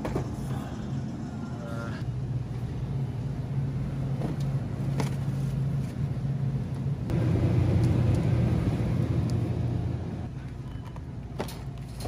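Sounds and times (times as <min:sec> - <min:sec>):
freezer hum: 0:00.0 - 0:10.4.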